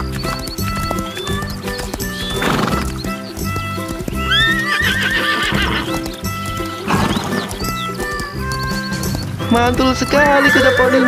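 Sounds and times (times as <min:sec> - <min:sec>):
background music: 0:00.0 - 0:11.0
horse whinnying: 0:00.0 - 0:11.0.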